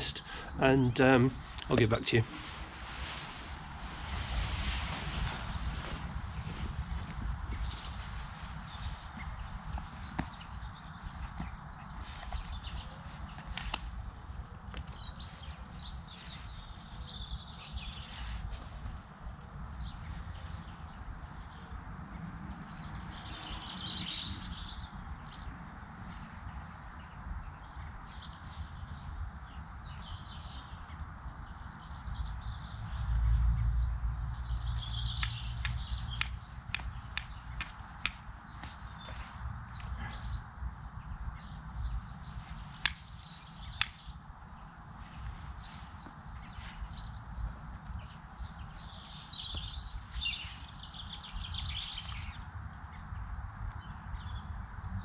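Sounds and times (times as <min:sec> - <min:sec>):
garden birds singing: 0:00.0 - 0:55.0
flint striking fire steel: 0:35.2 - 0:38.8, 0:42.8 - 0:43.0.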